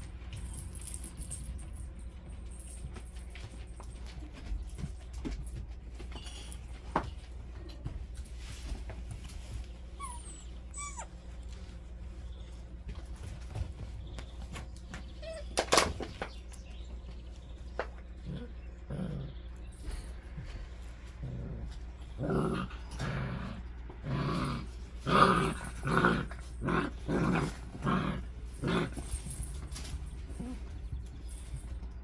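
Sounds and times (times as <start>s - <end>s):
puppies growling in play: 7.8s - 15.9s, 17.7s - 31.4s.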